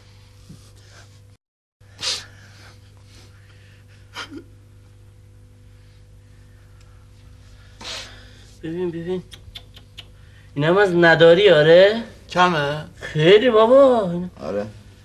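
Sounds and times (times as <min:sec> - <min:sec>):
low electrical hum: 0:00.0 - 0:15.0
person breathing: 0:05.6 - 0:08.6.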